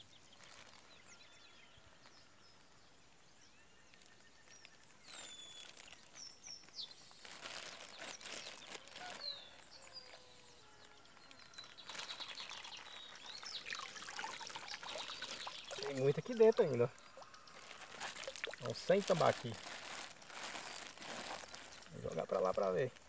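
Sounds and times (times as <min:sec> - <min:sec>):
birds chirping: 0:03.4 - 0:23.0
water splashing and trickling: 0:11.2 - 0:22.8.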